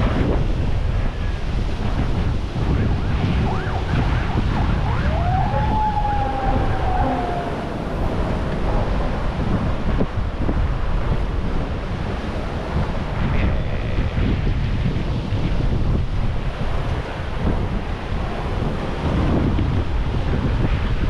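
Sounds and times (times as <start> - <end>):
ocean surf: 0.0 - 21.0
wind buffeting microphone: 0.0 - 21.0
short gliding cries: 5.0 - 8.4.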